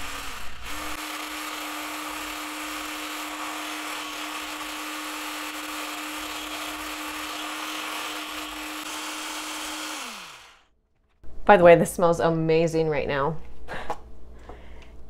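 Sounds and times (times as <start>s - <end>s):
immersion blender whirring: 0.0s - 10.7s.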